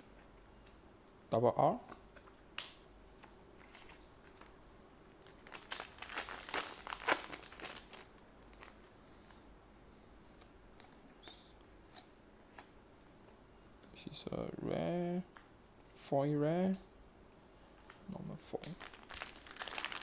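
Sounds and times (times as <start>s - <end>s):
plastic wrapper crinkling: 5.2s - 9.1s, 17.8s - 20.0s.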